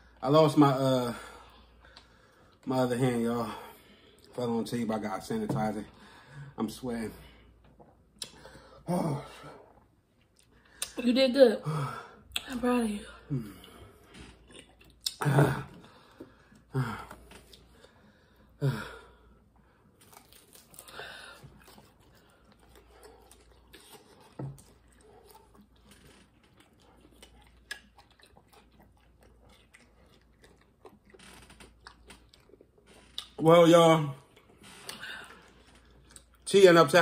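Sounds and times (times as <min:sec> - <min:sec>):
person chewing food: 0:13.3 - 0:18.6, 0:19.4 - 0:33.4, 0:34.2 - 0:36.4.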